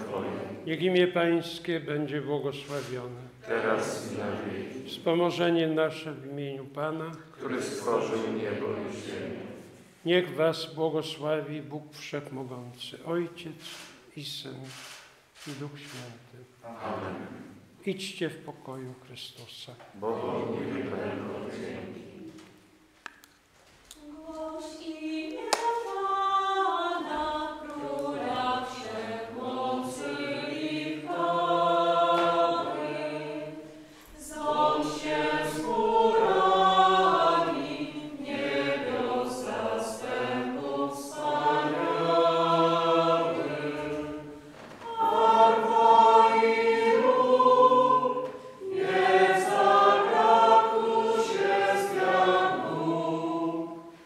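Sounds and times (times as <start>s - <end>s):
choir singing: 0.0s - 1.3s, 3.0s - 5.7s, 7.0s - 9.9s, 16.6s - 17.7s, 20.0s - 22.6s, 24.0s - 54.0s.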